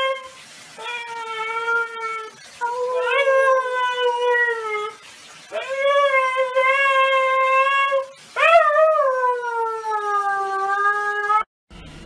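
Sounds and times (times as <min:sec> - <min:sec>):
dog howling: 0:00.0 - 0:11.5.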